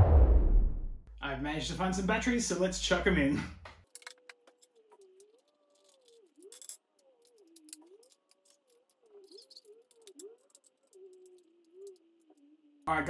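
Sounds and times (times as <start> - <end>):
batteries clicking into plastic compartment: 3.8 - 12.1
faint wavering tone: 4.7 - 12.8.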